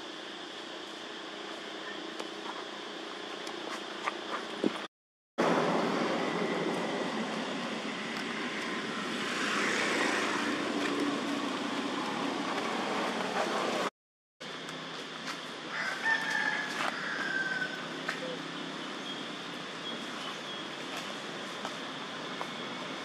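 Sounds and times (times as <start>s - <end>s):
steady background noise: 0.0s - 23.0s
rooster crowing: 15.7s - 18.0s.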